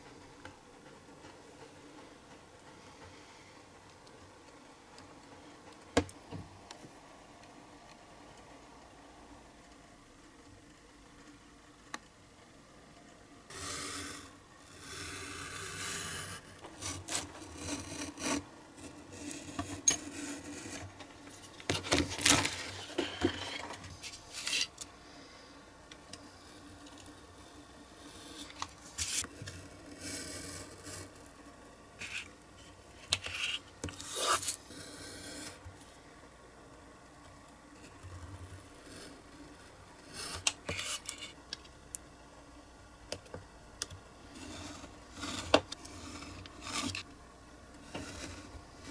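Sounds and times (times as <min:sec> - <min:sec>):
faint steady hum: 0:00.0 - 0:48.9
knife scoring card along ruler: 0:13.5 - 0:20.8.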